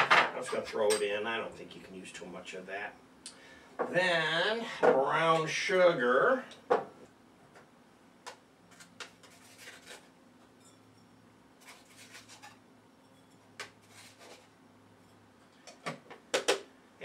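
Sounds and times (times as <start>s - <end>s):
spoon scraping plastic container: 8.7s - 10.2s, 11.6s - 12.6s, 13.7s - 14.6s.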